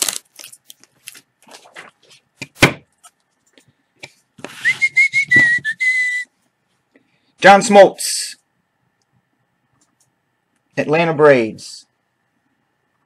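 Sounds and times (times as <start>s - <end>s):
foil card pack rustling: 0.0s - 2.2s
high whistled note: 4.5s - 6.3s.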